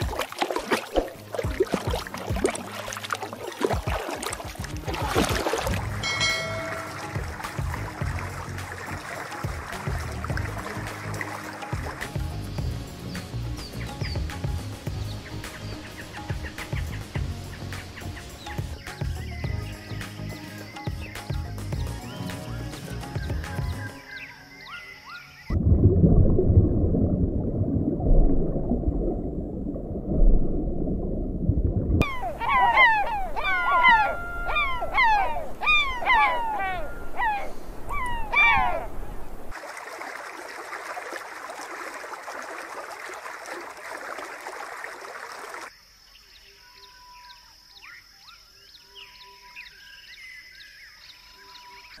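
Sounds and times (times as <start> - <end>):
gulls calling: 0.0 - 25.5, 32.0 - 39.6.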